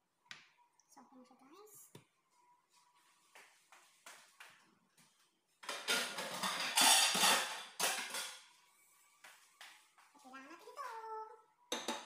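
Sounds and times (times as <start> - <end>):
pots and pans clattering: 5.6 - 8.5.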